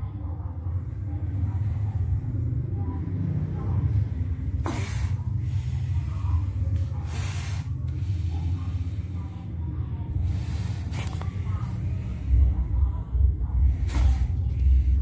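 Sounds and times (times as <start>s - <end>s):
low hum: 0.0s - 15.0s
crocodile hissing: 4.6s - 6.0s, 7.0s - 7.8s.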